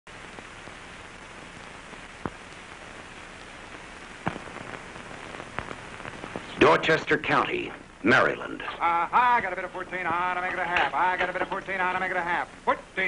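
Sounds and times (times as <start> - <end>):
film soundtrack hiss and crackle: 0.1 - 13.0
sharp pops: 0.4 - 6.9.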